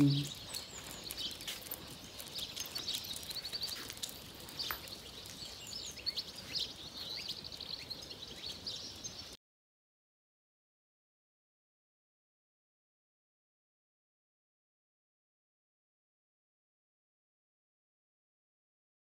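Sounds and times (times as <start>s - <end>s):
bird trill: 0.0s - 9.4s
faint outdoor hiss: 0.0s - 9.4s
small birds chirping: 0.0s - 9.4s.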